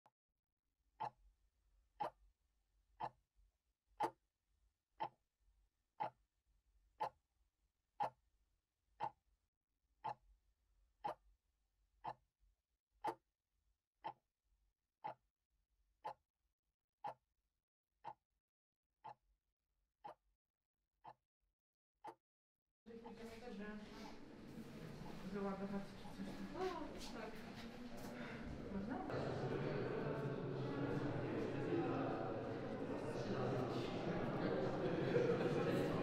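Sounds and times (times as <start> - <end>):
clock ticking: 2.0 - 2.2, 3.0 - 3.2, 10.0 - 10.2, 11.0 - 11.2.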